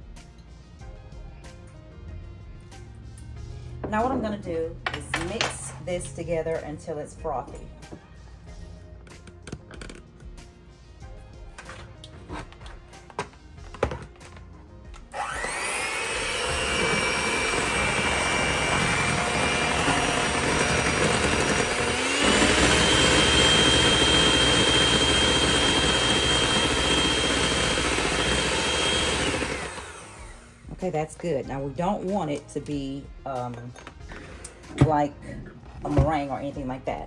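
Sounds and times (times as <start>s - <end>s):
electric hand mixer whirring: 15.1s - 30.7s.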